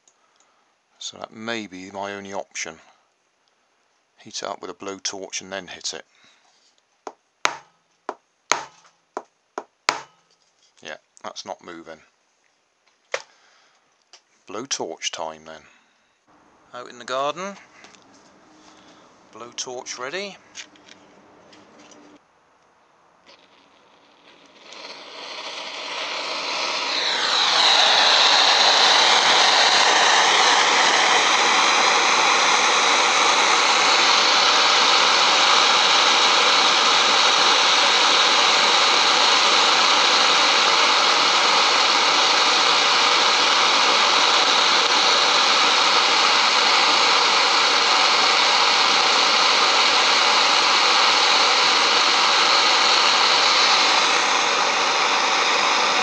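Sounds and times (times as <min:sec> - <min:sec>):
blowtorch rushing hiss: 0:23.3 - 0:56.0
blowtorch whistle falling in pitch: 0:23.3 - 0:56.0.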